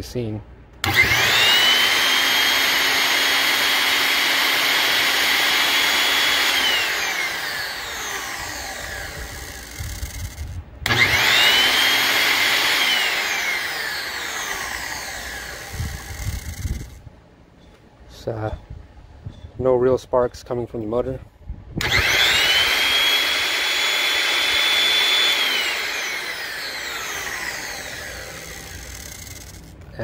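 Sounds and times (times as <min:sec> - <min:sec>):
circular saw motor whining: 0:00.8 - 0:17.1, 0:21.8 - 0:30.0.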